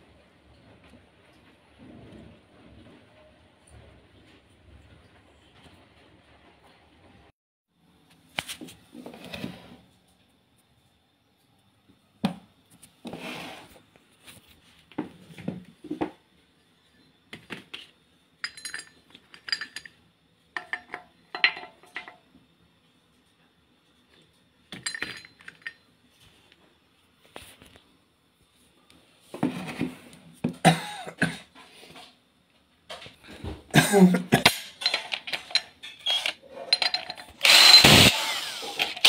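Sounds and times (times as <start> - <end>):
metal parts clinking and knocking: 18.4 - 20.0, 20.6 - 22.2, 24.7 - 25.9, 34.4 - 38.1.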